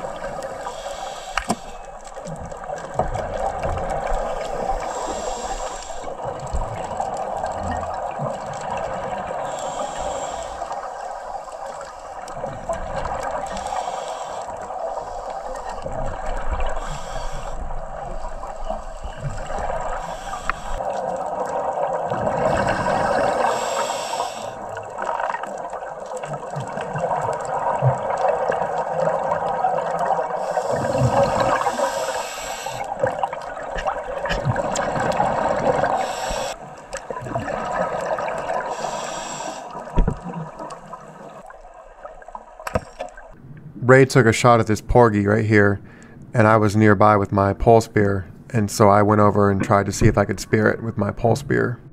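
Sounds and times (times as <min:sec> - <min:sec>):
underwater hiss: 0:00.0 - 0:02.7, 0:03.4 - 0:07.1, 0:09.1 - 0:21.5, 0:22.2 - 0:25.8, 0:28.0 - 0:36.9, 0:37.6 - 0:41.6
regulator bubbles gurgling: 0:00.0 - 0:43.4.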